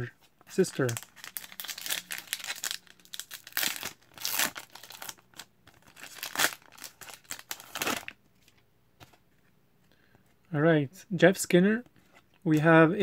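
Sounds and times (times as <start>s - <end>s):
wrapper tearing and crinkling: 0.6s - 8.2s.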